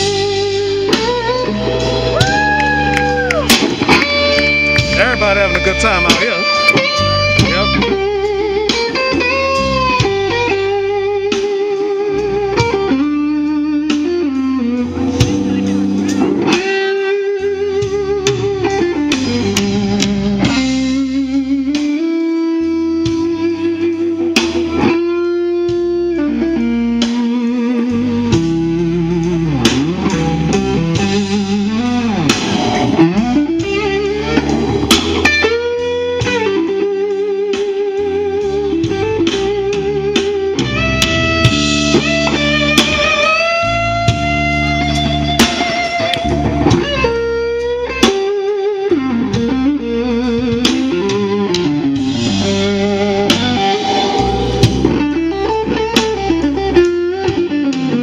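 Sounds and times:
drums: 0:00.0 - 0:58.0
electric guitar solo: 0:00.0 - 0:58.0.

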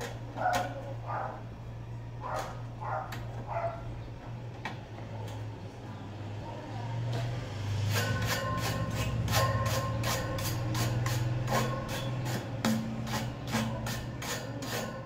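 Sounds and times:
electric fan motor humming: 0:05.5 - 0:15.0.

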